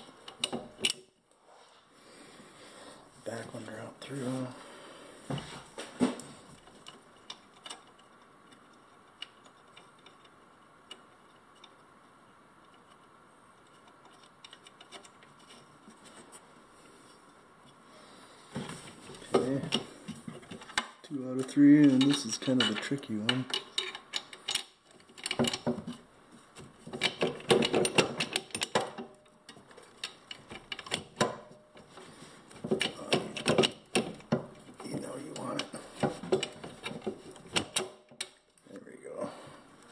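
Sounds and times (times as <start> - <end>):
metal bolts and nuts clicking: 0.2 - 1.1, 6.6 - 11.8, 19.1 - 38.6.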